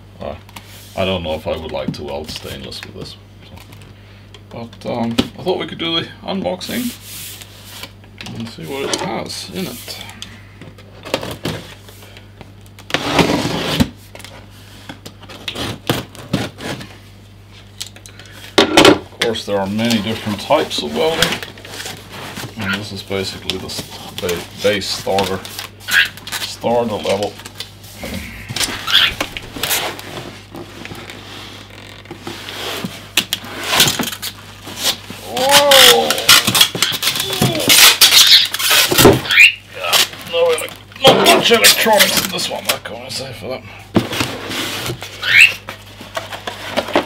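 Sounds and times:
faint steady hum: 0:00.0 - 0:47.0
cardboard rustling and scraping: 0:12.9 - 0:17.7, 0:20.0 - 0:35.4, 0:44.0 - 0:47.0.

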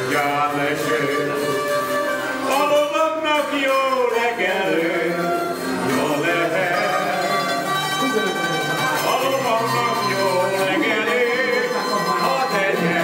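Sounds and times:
zithers playing a tune: 0:03.6 - 0:13.0.

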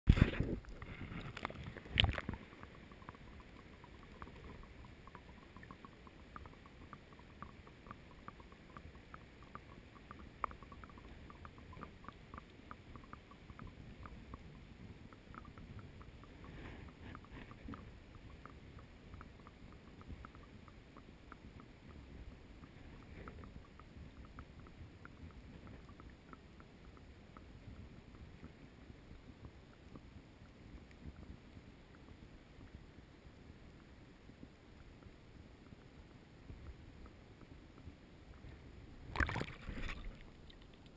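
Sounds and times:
muffled underwater ambience: 0:00.1 - 0:40.9
faint irregular clicking: 0:00.6 - 0:40.9
water splash and knock: 0:39.1 - 0:40.7.

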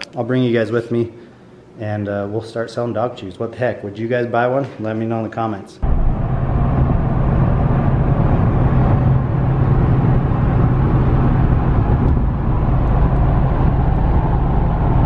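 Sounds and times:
road and engine drone in cabin: 0:05.8 - 0:15.0.

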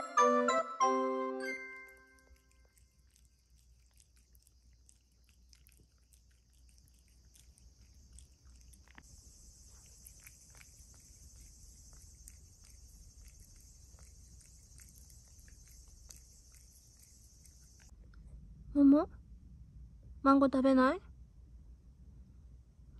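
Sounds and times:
cats licking and chewing: 0:01.5 - 0:17.9.

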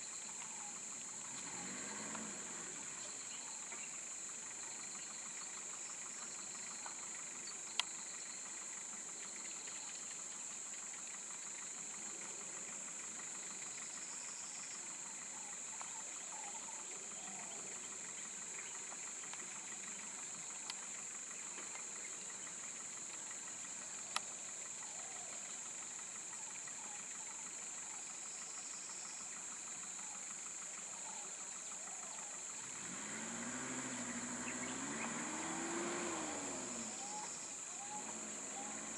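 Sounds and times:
insects droning: 0:00.0 - 0:38.9
vehicle engine idling: 0:00.0 - 0:38.9
engine revving: 0:01.2 - 0:03.5, 0:32.5 - 0:38.9.

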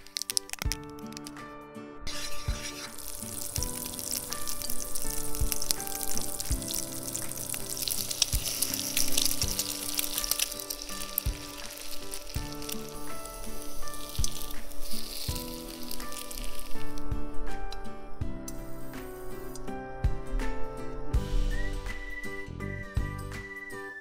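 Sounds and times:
bread sizzling in a frying pan: 0:00.0 - 0:01.3, 0:02.1 - 0:17.3
light background music: 0:00.0 - 0:24.0.

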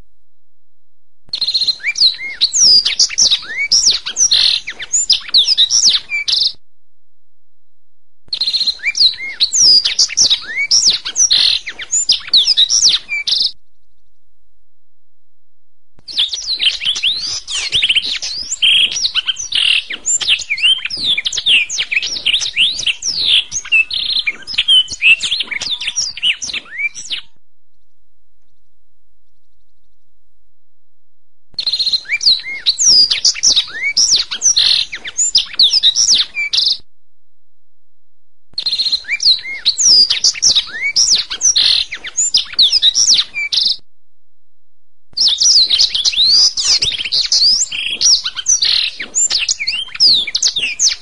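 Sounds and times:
canary singing trills: 0:01.3 - 0:06.6, 0:08.3 - 0:13.6, 0:16.1 - 0:27.8, 0:31.6 - 0:36.8, 0:38.6 - 0:43.8, 0:45.2 - 0:51.0.

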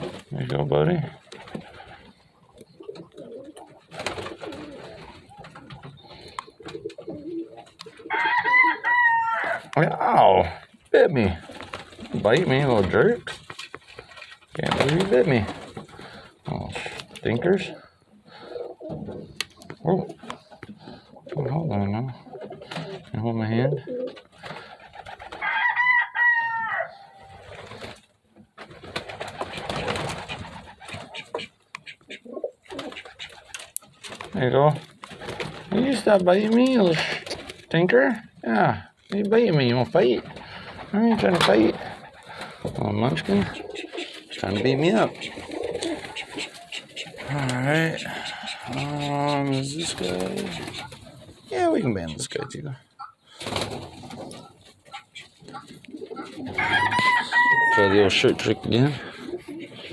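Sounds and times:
pigeons cooing: 0:00.0 - 0:28.0, 0:28.7 - 0:39.0, 0:39.7 - 0:59.9
rustling in nest: 0:39.2 - 0:52.5
baby pigeon squealing: 0:43.3 - 0:47.3, 0:47.9 - 0:51.1.

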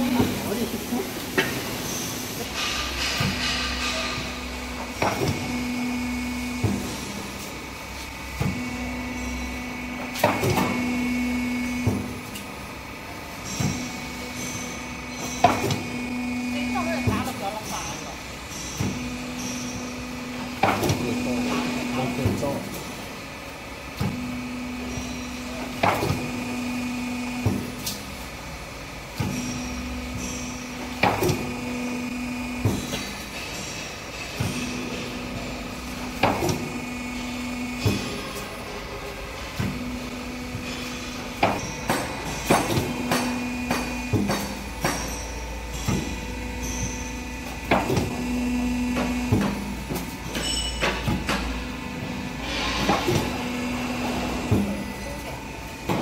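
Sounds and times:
machine humming: 0:00.0 - 0:56.0
hydraulic press clunks: 0:01.3 - 0:28.2, 0:29.1 - 0:56.0
ringing metallic clank: 0:41.6 - 0:47.6, 0:50.2 - 0:51.6.

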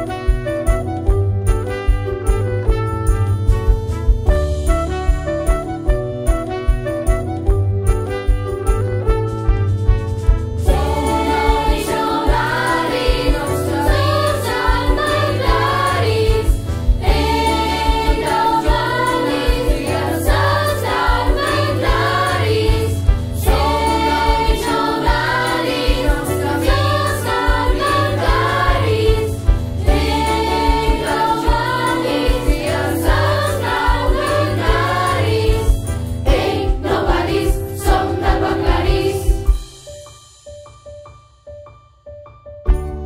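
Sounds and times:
pop backing track with beat: 0:00.0 - 0:41.1
choir of young voices singing: 0:10.7 - 0:39.5.

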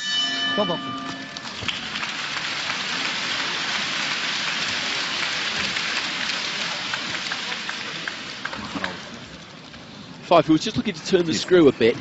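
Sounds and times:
crowd applauding: 0:00.9 - 0:10.0.

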